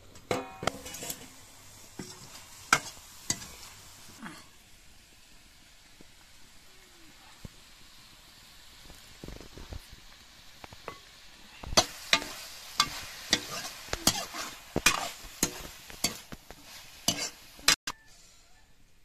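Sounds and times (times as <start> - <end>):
faint sizzle: 0.0 - 19.0
ladle scraping a metal wok: 0.1 - 4.5, 11.7 - 18.5.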